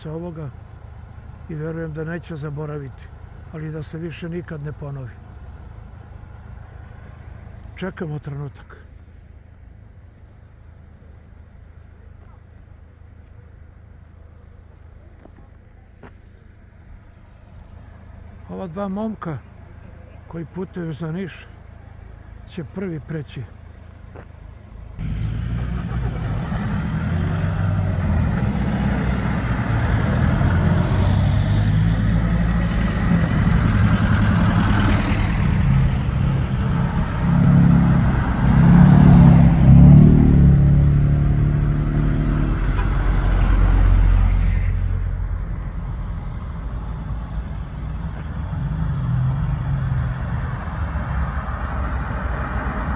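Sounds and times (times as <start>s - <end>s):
cars driving past: 16.0s - 52.9s
car accelerating past: 25.0s - 52.9s.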